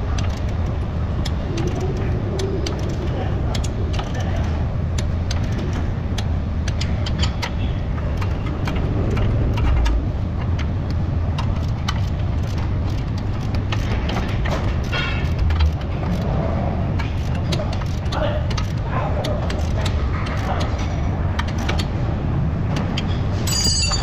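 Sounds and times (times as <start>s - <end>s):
steady low hum: 0.0s - 24.0s
socket wrench ratchet clicks: 0.1s - 4.2s, 11.4s - 16.3s.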